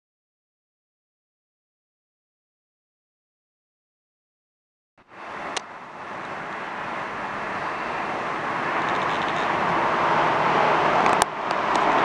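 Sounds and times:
rushing outdoor background noise: 5.0 - 12.0.

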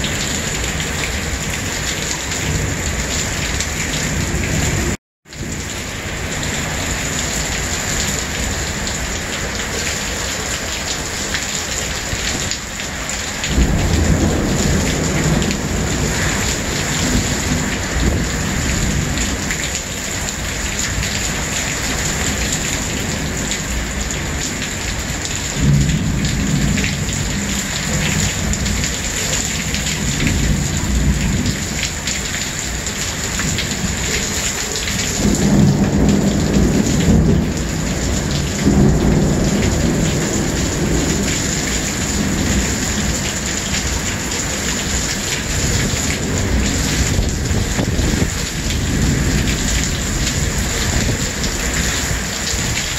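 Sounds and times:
heavy rain pouring: 0.0 - 52.9
thunder rumbling: 13.4 - 52.9.

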